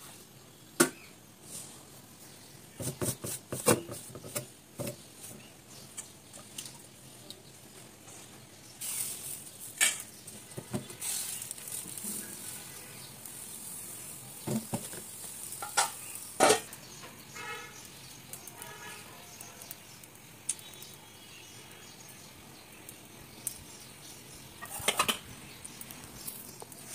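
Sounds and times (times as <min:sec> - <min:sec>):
batter sizzling on a hot pan: 0:00.0 - 0:26.9
pan and utensils clinking: 0:09.7 - 0:12.8, 0:14.4 - 0:17.2, 0:24.6 - 0:25.3
metal lid handled: 0:24.6 - 0:25.2.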